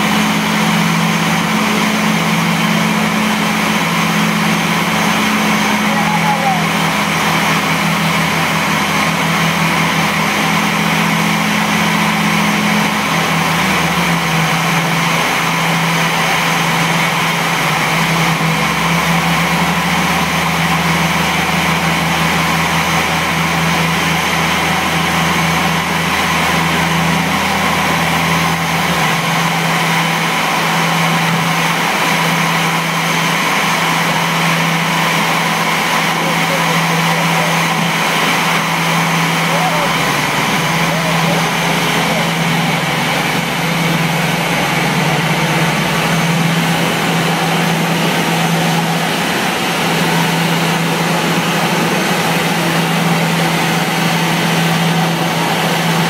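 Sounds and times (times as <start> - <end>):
tug engine running: 0.0 - 56.0.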